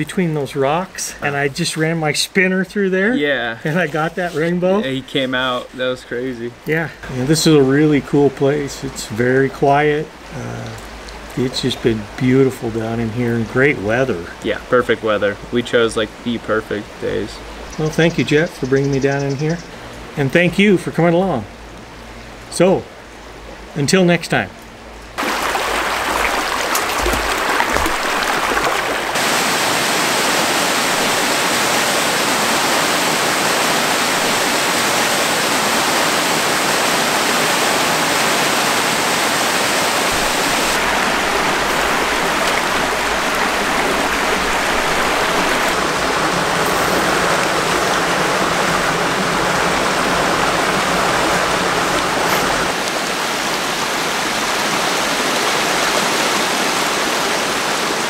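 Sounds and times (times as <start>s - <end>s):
creek rushing over rocks: 25.2s - 58.0s.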